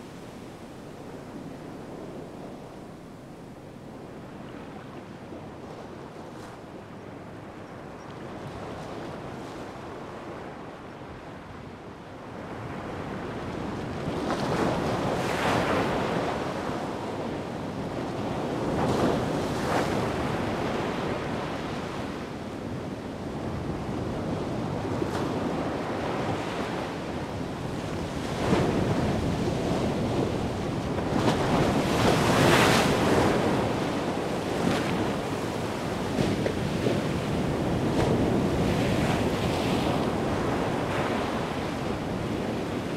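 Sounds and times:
wind buffeting microphone: 22.6 - 42.9.

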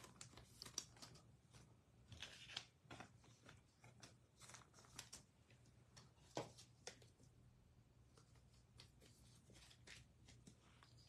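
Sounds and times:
trading cards rustling and clicking: 0.0 - 7.2
faint room hum: 0.0 - 11.0.

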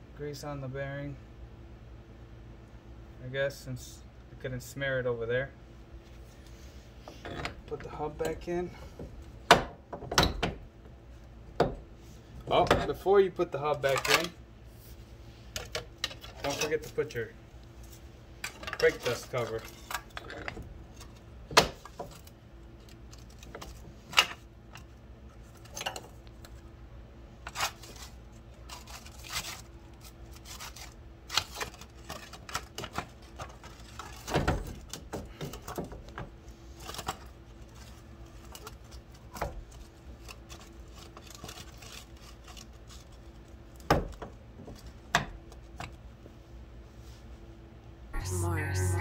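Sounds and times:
faint hum: 47.3 - 49.0.

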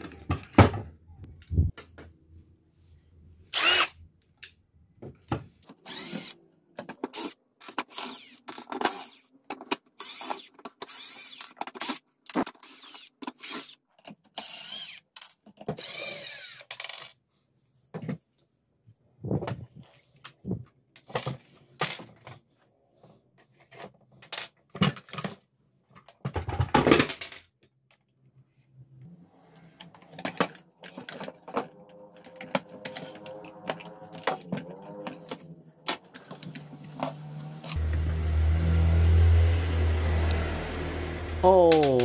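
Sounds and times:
plastic parts rattling: 5.6 - 17.2, 23.5 - 27.5, 29.8 - 37.1.

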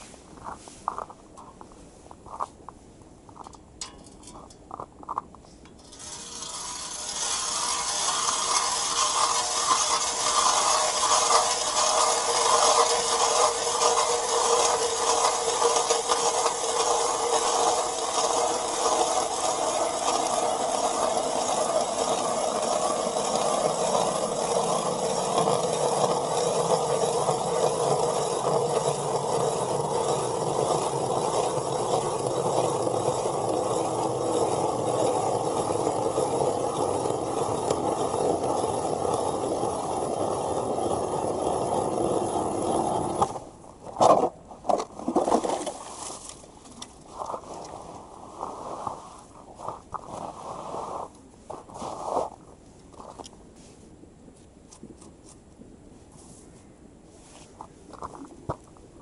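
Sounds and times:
ice auger grinding through ice: 5.8 - 52.4.

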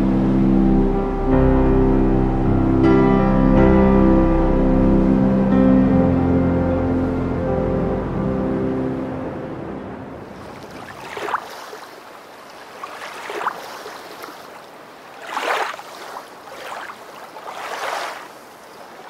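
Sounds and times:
waves washing in: 7.0 - 19.0.

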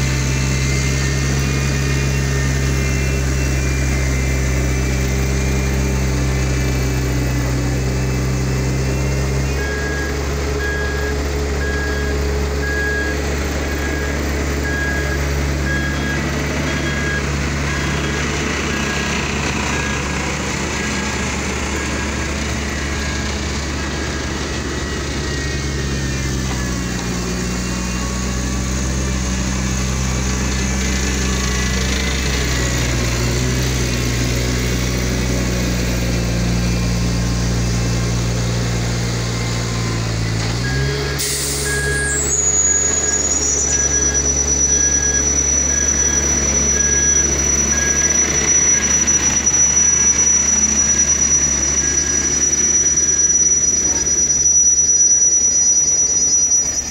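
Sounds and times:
heavy diesel machines running: 0.0 - 56.9
machine alarm beeping: 8.0 - 33.9, 39.3 - 56.9.

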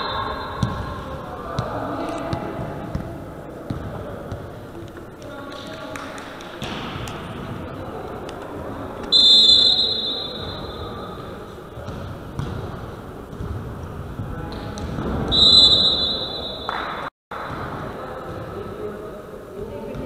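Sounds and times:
referee's whistle blasts: 0.0 - 0.6, 9.1 - 11.0, 15.3 - 17.0.

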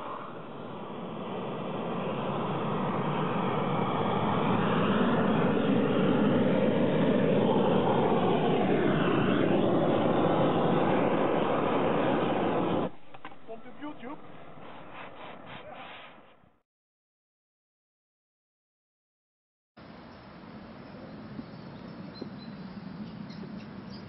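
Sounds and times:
roofing torch roaring: 0.0 - 16.5.

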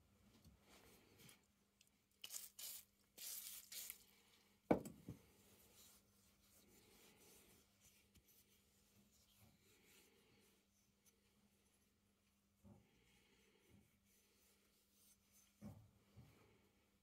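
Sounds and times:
aerosol spray hissing: 2.3 - 4.0.

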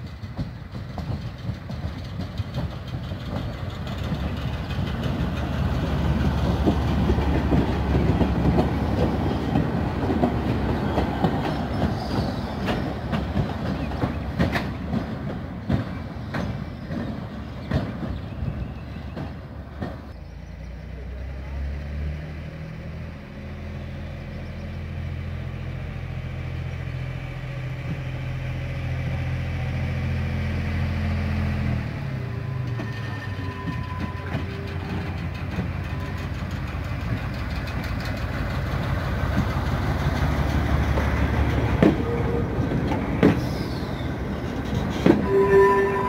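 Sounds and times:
rail wagons rolling: 0.0 - 20.2, 27.8 - 46.0
steady squeal: 32.3 - 36.5, 43.4 - 46.0.

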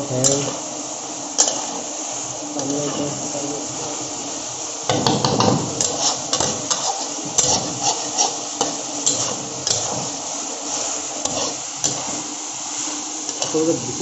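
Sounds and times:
food sizzling: 0.0 - 14.0
metal spatula scraping pan: 4.9 - 12.3.

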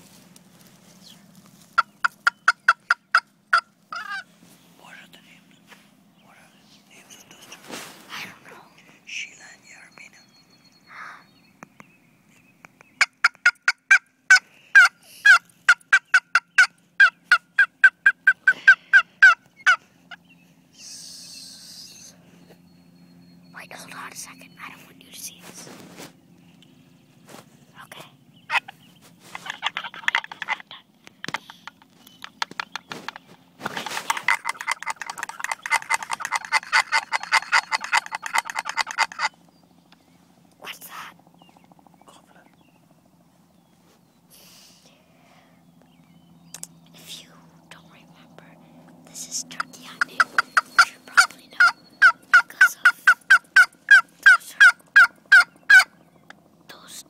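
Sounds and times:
turkey yelps: 1.8 - 4.3, 13.0 - 20.2, 28.5 - 30.8, 34.1 - 39.3, 50.1 - 55.9.

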